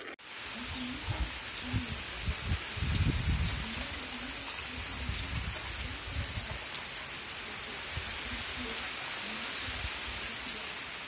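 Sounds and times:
steady rain falling: 0.0s - 11.0s
raindrop ticks: 1.1s - 7.1s.

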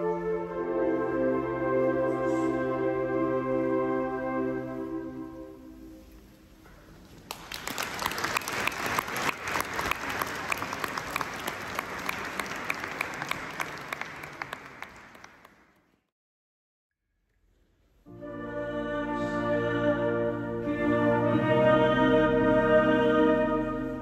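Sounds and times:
audience applause: 7.2s - 15.8s.

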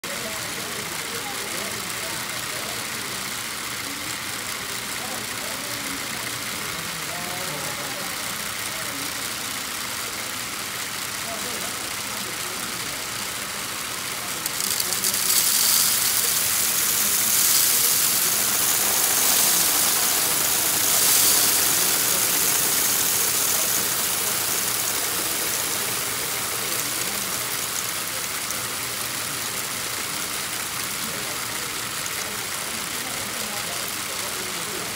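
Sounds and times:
motor humming: 3.0s - 32.2s
small plastic pieces rattling out: 13.8s - 28.6s.

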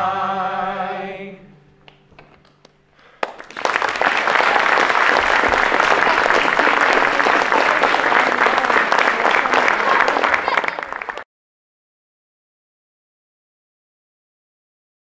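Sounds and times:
group of singers holding a note: 0.0s - 1.6s
audience applause: 3.2s - 11.2s.

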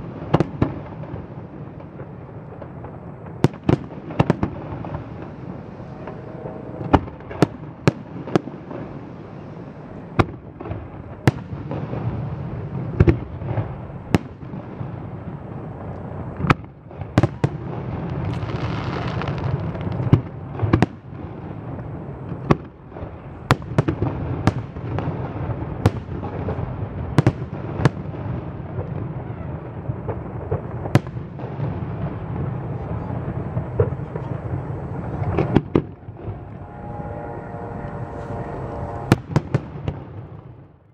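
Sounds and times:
low rumble: 4.4s - 9.9s, 32.8s - 40.4s.

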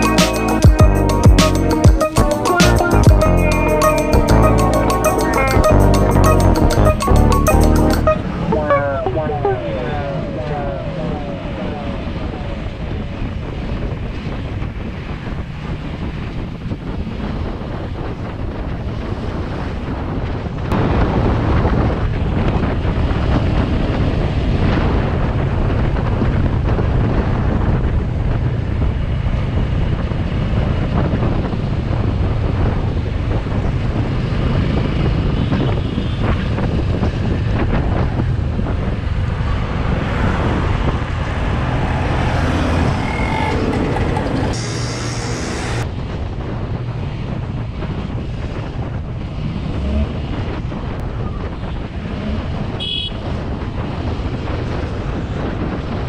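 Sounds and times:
wind rush on microphone: 8.2s - 56.0s
motorcycle engine: 39.0s - 45.8s.

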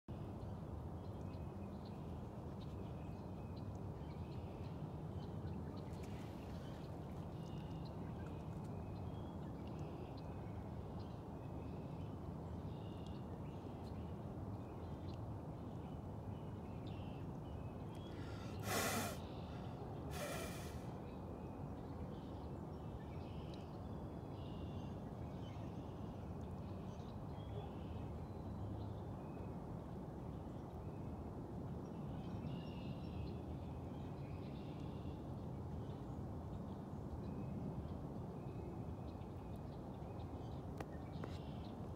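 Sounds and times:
sharp breaths near microphone: 18.0s - 20.9s.

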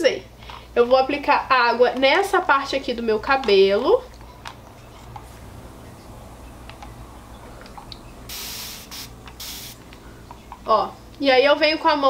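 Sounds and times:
spray bottle hissing: 8.3s - 9.8s.

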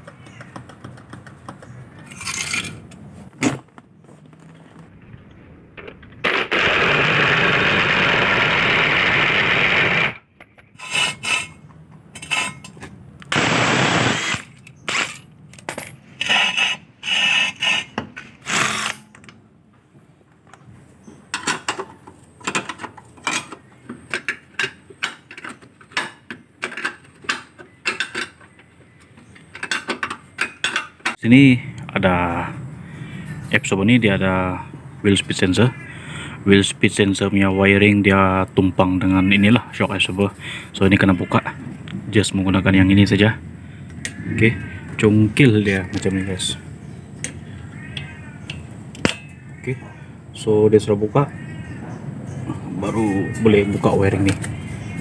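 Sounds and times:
steady noise: 4.8s - 10.3s, 13.3s - 14.6s.

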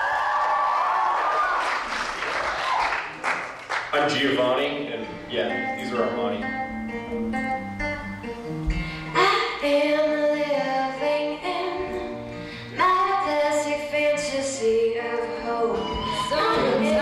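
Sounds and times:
acoustic guitar: 3.8s - 17.0s
girl singing: 9.1s - 12.2s, 12.8s - 17.0s.

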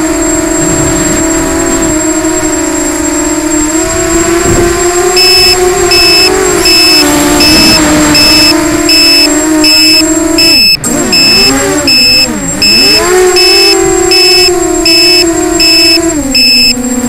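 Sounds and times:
drone motors whining: 0.0s - 17.0s
high two-tone beep: 5.2s - 16.8s.

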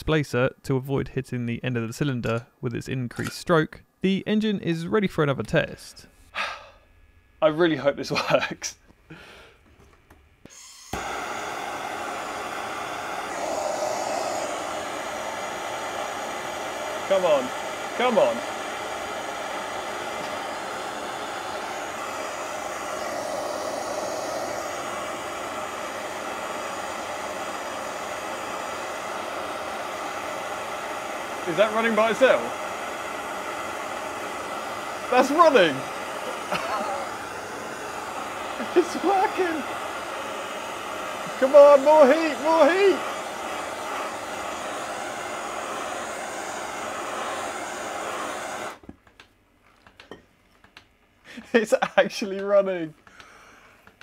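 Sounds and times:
heater blowing hiss: 10.4s - 48.8s, 51.3s - 54.0s.

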